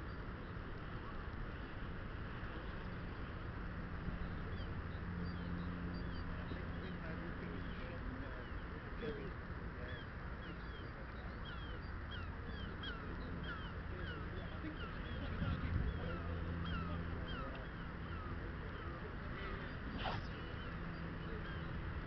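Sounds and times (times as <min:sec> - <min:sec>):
low wind rumble: 0:00.0 - 0:22.0
bird calling: 0:09.8 - 0:22.0.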